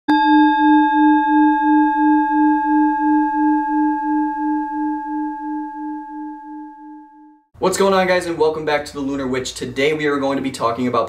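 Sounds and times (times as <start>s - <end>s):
singing bowl ringing: 0.1s - 7.5s.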